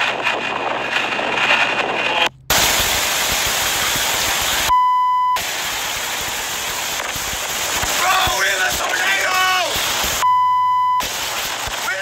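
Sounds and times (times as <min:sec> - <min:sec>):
storm wind on microphone: 0:00.0 - 0:02.3
electronic beep: 0:04.7 - 0:05.4, 0:10.2 - 0:11.0.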